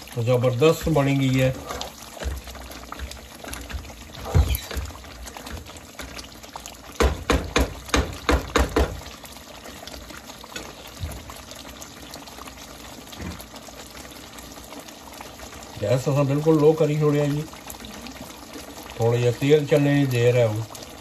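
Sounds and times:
sauce simmering and sizzling: 0.0s - 21.0s
utensil knocking against pan: 7.0s - 9.0s.

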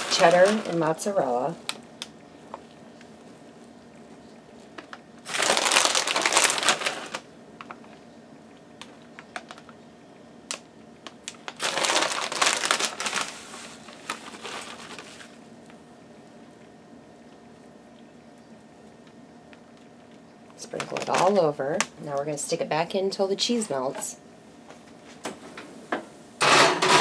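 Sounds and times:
plastic bag crinkling: 0.0s - 1.8s, 4.6s - 8.0s, 8.8s - 9.8s, 10.5s - 15.8s, 19.7s - 21.9s.

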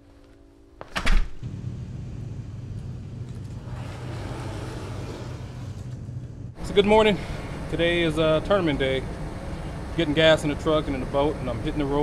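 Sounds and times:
door shutting: 0.8s - 1.5s
vehicle engine humming: 1.4s - 12.0s.

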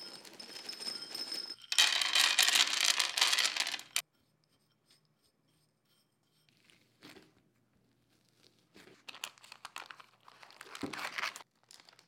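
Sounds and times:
dense crinkling and crackling: 8.0s - 12.0s.

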